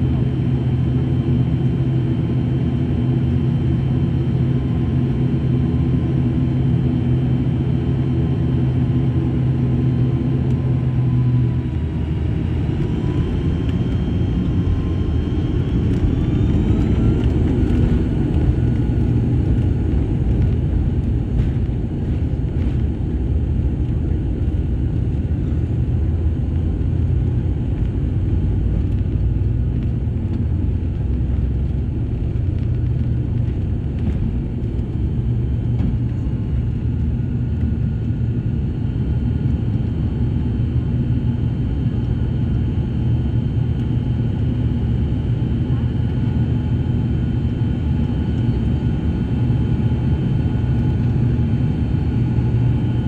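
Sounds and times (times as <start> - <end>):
airliner engine drone and rumble: 0.0 - 53.0
engine whine rising in pitch: 10.2 - 22.8.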